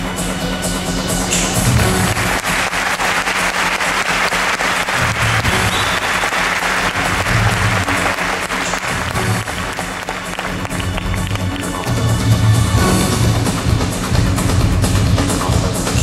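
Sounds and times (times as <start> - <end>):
backing music: 0.0 - 16.0
audience applauding: 1.7 - 12.5.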